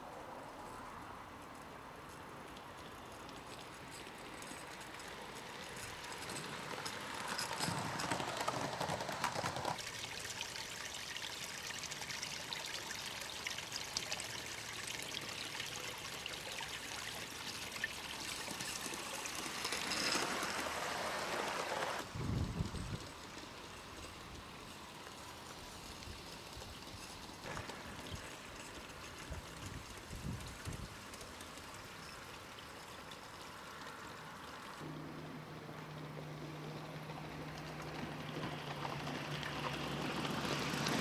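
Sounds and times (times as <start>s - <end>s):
model steam locomotive chuffing: 4.8s - 10.0s, 18.2s - 22.1s.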